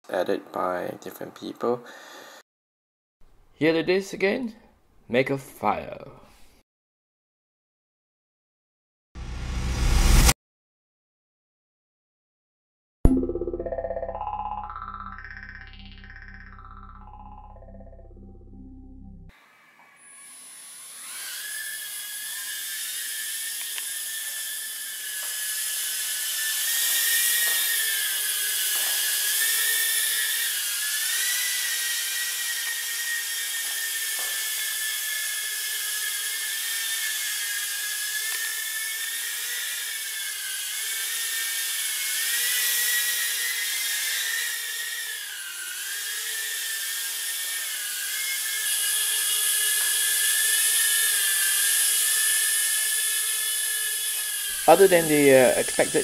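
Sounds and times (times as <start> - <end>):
quadcopter motors whining: 19.3 - 56.0.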